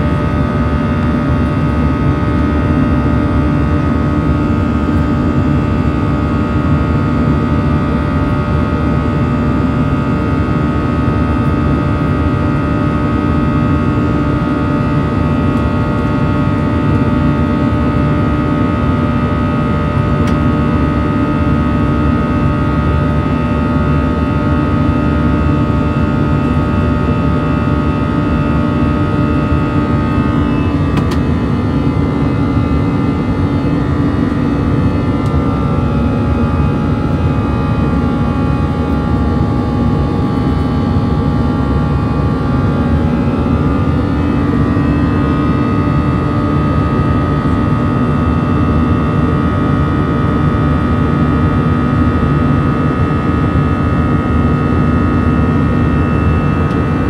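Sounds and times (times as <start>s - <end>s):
jet engines in airplane cabin: 0.0s - 57.0s.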